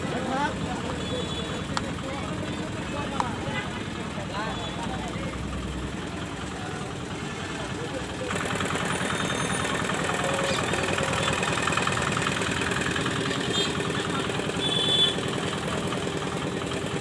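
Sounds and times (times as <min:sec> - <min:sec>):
engine idling: 0:00.0 - 0:17.0
street noise: 0:00.0 - 0:17.0.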